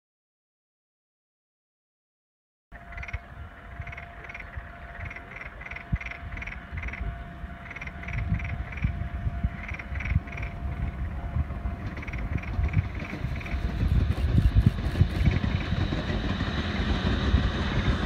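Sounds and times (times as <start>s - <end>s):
frogs croaking: 2.8s - 11.2s, 11.8s - 13.8s
low rumble: 2.8s - 18.0s.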